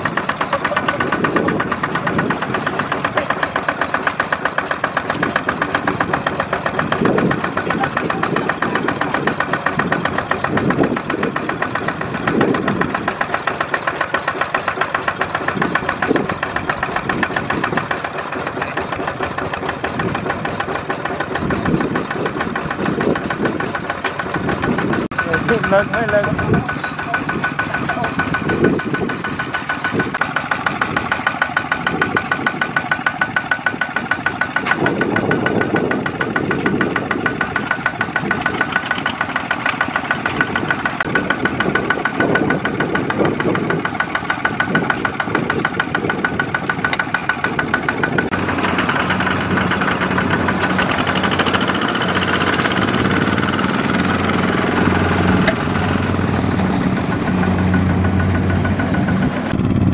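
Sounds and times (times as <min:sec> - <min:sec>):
diesel engine chugging: 0:00.0 - 0:59.9.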